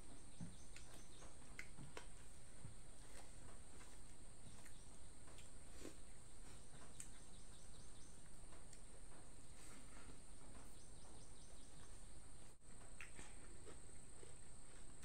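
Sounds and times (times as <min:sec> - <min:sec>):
steady high-pitched hiss: 0:00.0 - 0:15.0
man chewing with wet mouth clicks: 0:00.7 - 0:02.2, 0:07.0 - 0:07.3, 0:12.7 - 0:15.0.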